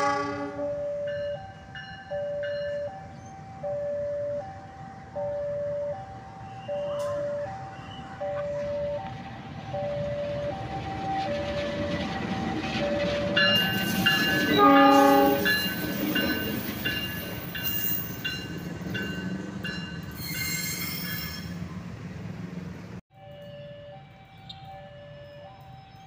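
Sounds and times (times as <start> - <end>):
train horn blast: 0.0 - 0.8, 14.3 - 15.8
locomotive engine rumble: 2.4 - 23.0
crossing bell two-tone chime: 12.9 - 21.6.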